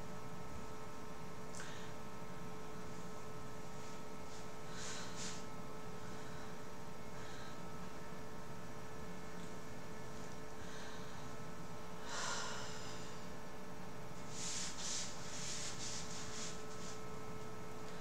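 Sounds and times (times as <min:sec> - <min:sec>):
electrical mains hum: 0:00.0 - 0:18.0
soft hisses: 0:14.3 - 0:17.0.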